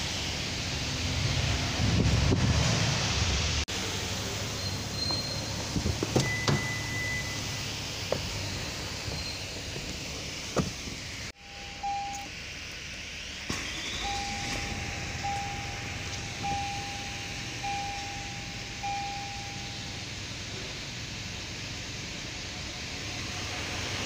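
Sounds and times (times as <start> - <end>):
dashboard warning chimes: 6.0 - 7.6, 11.4 - 12.3, 13.9 - 20.1.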